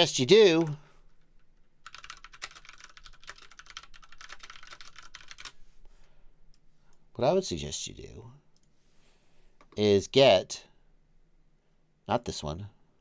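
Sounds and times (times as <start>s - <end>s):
typing on computer keyboard: 1.5s - 5.6s.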